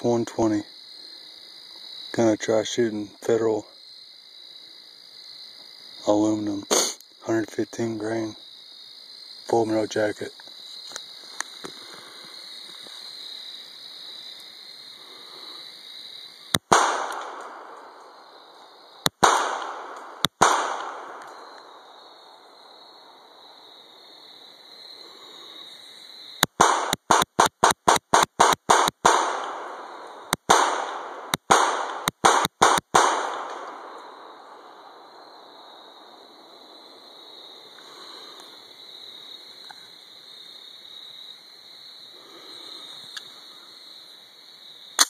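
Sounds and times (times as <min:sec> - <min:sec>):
crickets trilling: 0:00.0 - 0:45.0
pistol shots with echo: 0:16.7 - 0:17.8, 0:19.2 - 0:21.2, 0:26.6 - 0:33.9.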